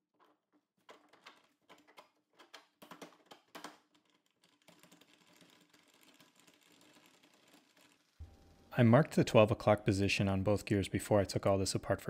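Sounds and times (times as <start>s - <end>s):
faint clicks and knocks: 0.2s - 8.3s.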